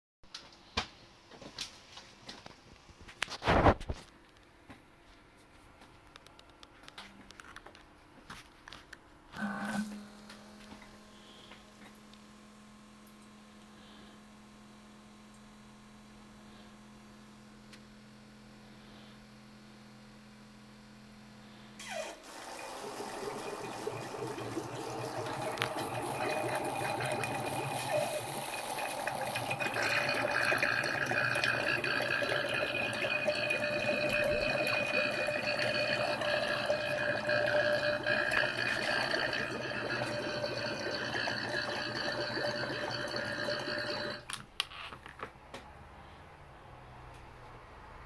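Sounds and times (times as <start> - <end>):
water pump buzzing: 9.4 - 16.6, 21.8 - 44.3
water running through tubing: 21.8 - 44.3.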